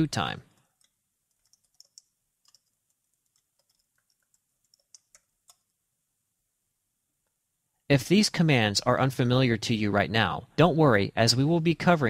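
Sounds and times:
keystrokes on computer keyboard: 0:00.6 - 0:05.7.

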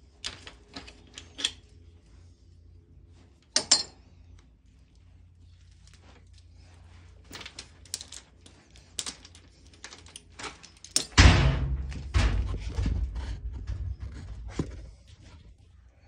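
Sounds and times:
loud thump: 0:11.2 - 0:13.8
low rumbling and knocking: 0:11.2 - 0:15.4.

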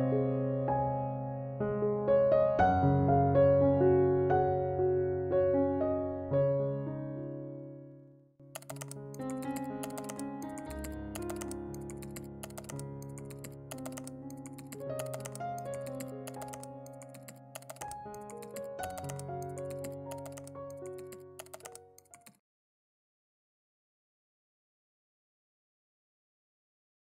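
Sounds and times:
soft music with held chords: 0:08.6 - 0:22.2
keyboard key clicks: 0:08.6 - 0:22.4.

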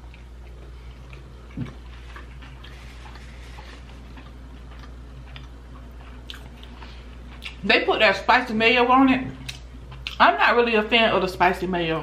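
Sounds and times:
person chewing food: 0:00.0 - 0:07.6, 0:09.4 - 0:10.2
wet mouth clicks and smacks: 0:09.4 - 0:10.2.

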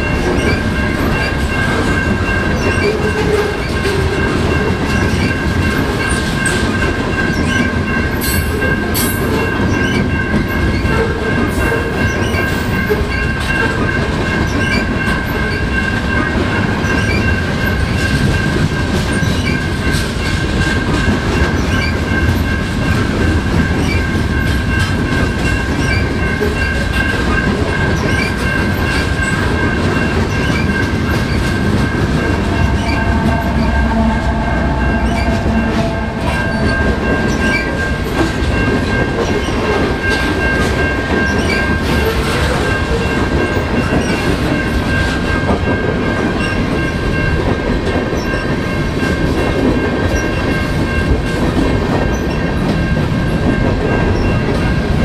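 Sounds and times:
freight train rumbling past: 0:00.0 - 0:55.0
wheels clacking over rail joints: 0:00.0 - 0:55.0
high ringing tone: 0:28.2 - 0:39.1.

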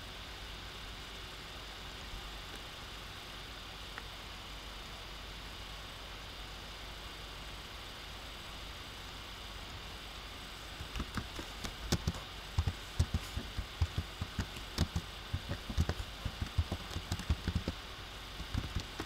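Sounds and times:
steady hiss: 0:00.0 - 0:19.0
keyboard typing clicks: 0:10.8 - 0:17.8, 0:18.4 - 0:19.0.

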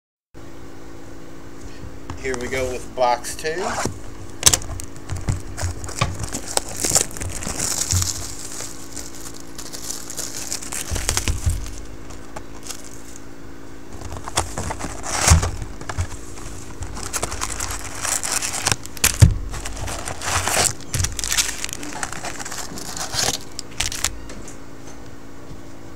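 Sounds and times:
cardboard lid opening: 0:03.6 - 0:13.2, 0:13.9 - 0:24.2
plastic shrink wrap crinkling: 0:03.6 - 0:13.3, 0:13.9 - 0:24.2.

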